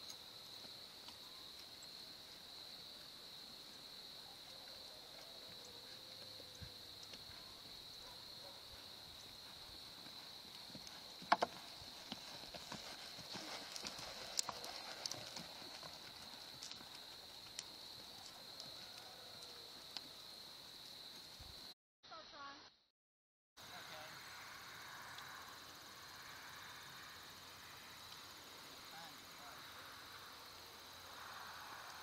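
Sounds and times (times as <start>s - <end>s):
hoofbeats on sand: 8.4s - 17.9s.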